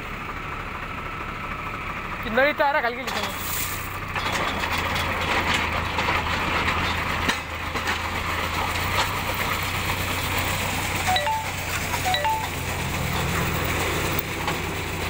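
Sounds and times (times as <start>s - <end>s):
tractor engine running: 0.0s - 15.0s
gravel rattling off auger: 3.0s - 15.0s
two-note electronic chime: 11.0s - 12.7s.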